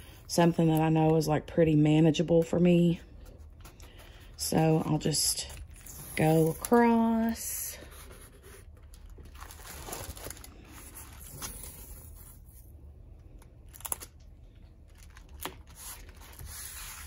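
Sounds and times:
plastic film rustling and crinkling: 8.6 - 12.5, 13.6 - 17.0.

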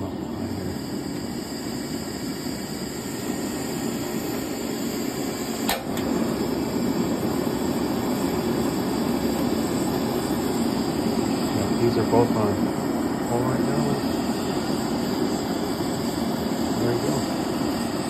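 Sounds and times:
gas flame rushing: 0.0 - 18.0
stove click: 5.6 - 6.1.

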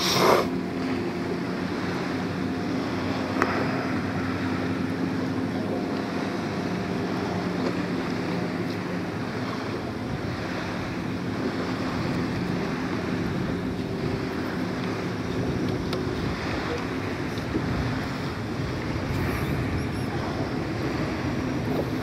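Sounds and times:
water lapping against a boat: 0.0 - 22.0
wind on the microphone: 8.7 - 22.0.

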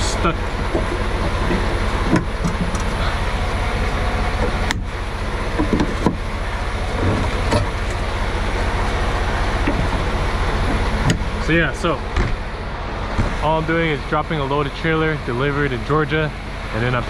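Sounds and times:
metal clanks of air-line couplings: 0.0 - 3.3
diesel truck engine idling: 0.0 - 17.0.

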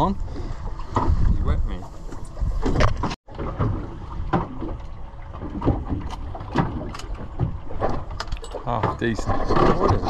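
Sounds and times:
wind on microphone: 0.0 - 3.2.

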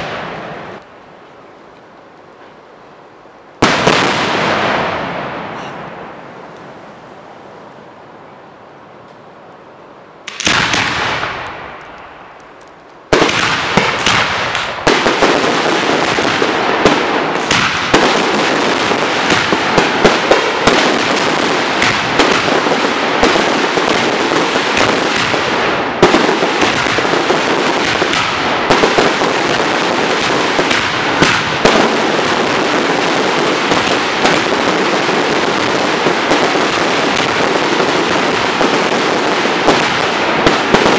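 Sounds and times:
fireworks sharp bangs: 0.0 - 0.8, 3.6 - 7.1, 10.2 - 40.9
fireworks crackling: 0.0 - 8.1, 10.1 - 40.9.

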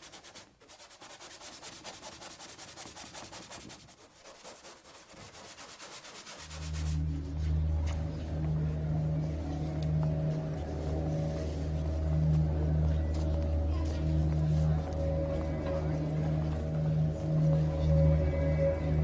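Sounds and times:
paintbrush strokes on paper: 0.0 - 7.6
low steady hum: 6.5 - 19.0.

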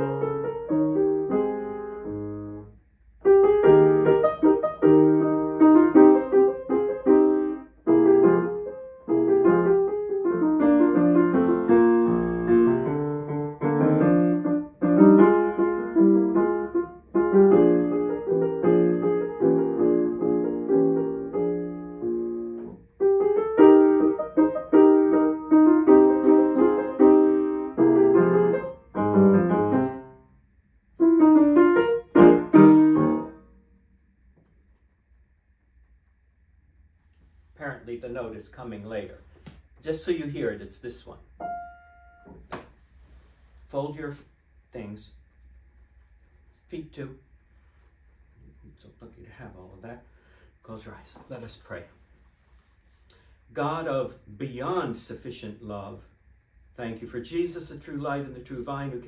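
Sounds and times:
solo grand piano piece: 0.0 - 33.9, 41.3 - 43.6.

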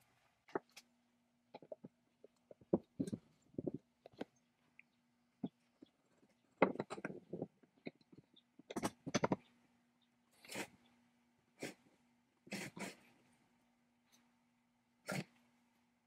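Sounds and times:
faint steady hum: 0.0 - 16.0
metal parts knocking and scraping: 6.3 - 9.5.

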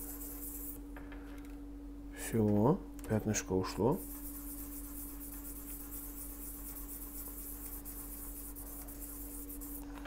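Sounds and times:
steady low hum: 0.0 - 10.0
metal washer rubbing on sandpaper: 4.0 - 9.8.

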